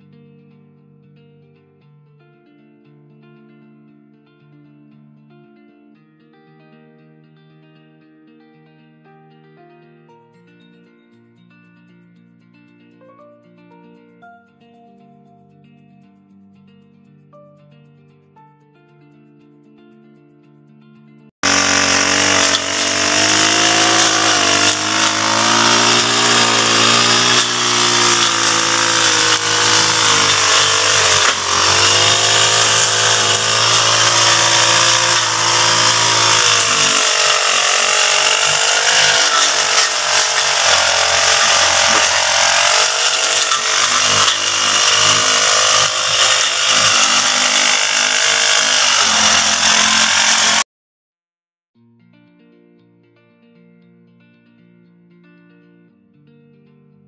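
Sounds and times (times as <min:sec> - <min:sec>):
brush cutter engine running: 0:21.4 - 0:50.6.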